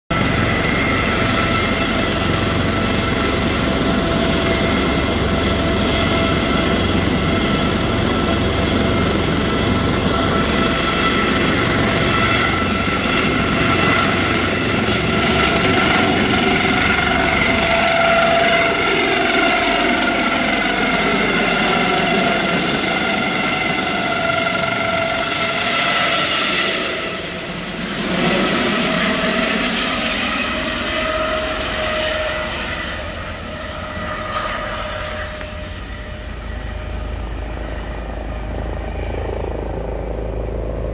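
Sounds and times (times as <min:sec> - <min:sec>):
helicopter rotor noise: 0:00.1 - 0:40.9
turbine engine whine: 0:00.1 - 0:40.9.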